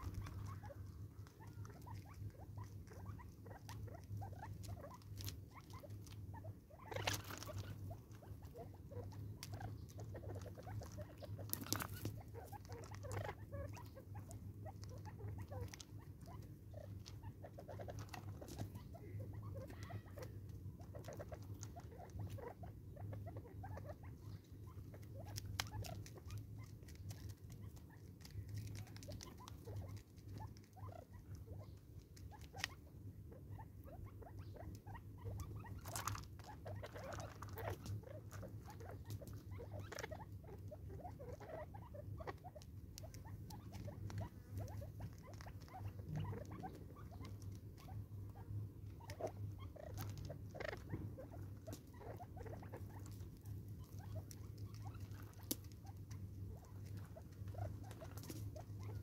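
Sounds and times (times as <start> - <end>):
birds shuffling on gravel: 0.0 - 23.2
birds pecking light ticks: 0.0 - 59.0
steady low hum: 0.0 - 59.0.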